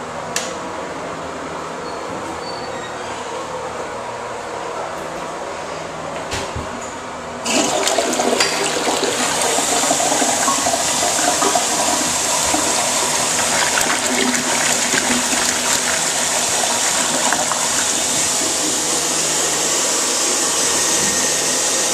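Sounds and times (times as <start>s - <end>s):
toilet flushing: 7.4s - 21.9s.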